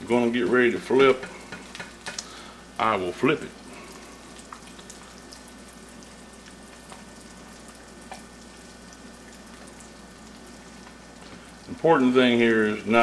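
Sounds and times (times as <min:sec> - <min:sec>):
egg sizzling in skillet: 0:00.1 - 0:11.6
small pops: 0:01.5 - 0:02.3.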